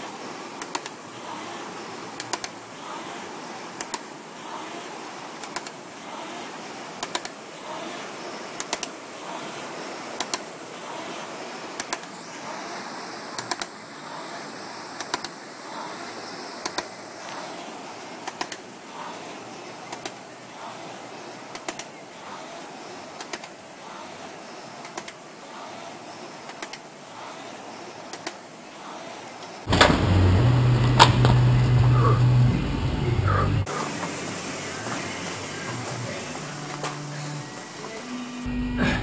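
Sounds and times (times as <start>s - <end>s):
rowing machine flywheel whoosh: 0.0s - 37.8s
sharp clicks: 0.6s - 1.0s, 2.2s - 2.6s, 5.4s - 5.8s, 8.6s - 8.9s, 10.2s - 10.5s, 11.8s - 12.1s, 13.4s - 13.7s.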